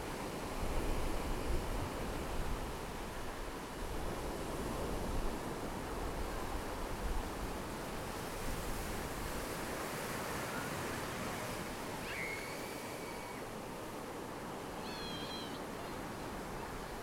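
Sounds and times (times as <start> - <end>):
faint bird whistle: 12.0 - 13.4, 14.8 - 15.6.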